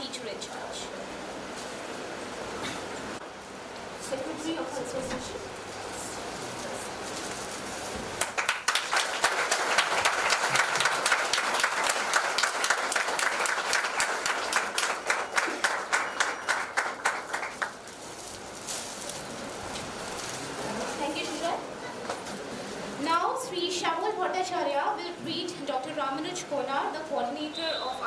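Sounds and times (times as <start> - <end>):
audience applauding: 8.2 - 17.8.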